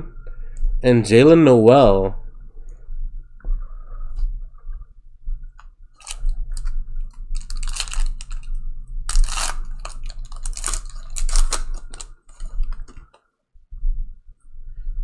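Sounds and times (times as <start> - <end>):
low steady hum: 0.0 - 15.0
foil wrapper crinkling: 6.0 - 13.0.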